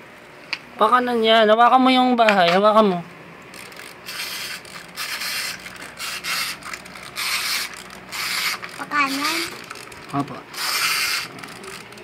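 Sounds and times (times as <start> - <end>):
toy plastic gears rattling: 3.5 - 12.0.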